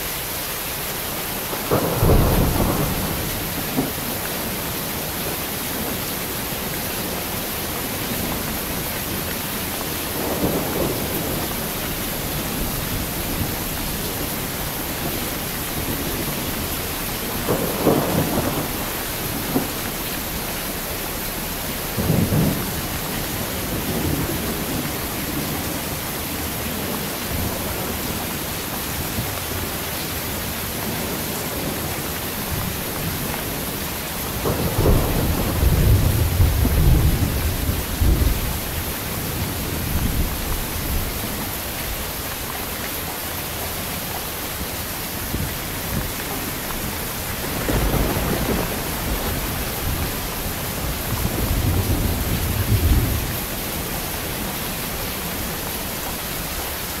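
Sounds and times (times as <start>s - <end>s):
heavy rain falling: 0.0s - 57.0s
thunder rumbling: 1.4s - 41.8s, 44.5s - 57.0s.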